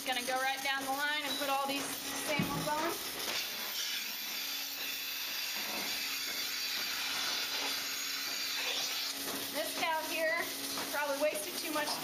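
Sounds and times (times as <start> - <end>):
milking machine vacuum hiss: 0.0 - 12.0.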